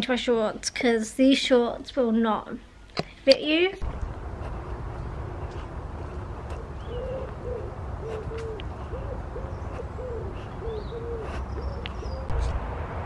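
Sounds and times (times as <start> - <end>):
small birds chirping: 3.1 - 12.6
low rumble: 3.8 - 8.8
pigeon cooing: 6.1 - 12.5.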